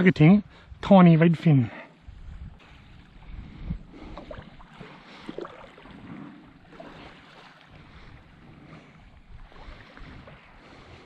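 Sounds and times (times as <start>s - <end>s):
wind on microphone: 2.0s - 11.0s
water lapping around legs: 2.1s - 11.0s
small splashes: 4.0s - 10.6s.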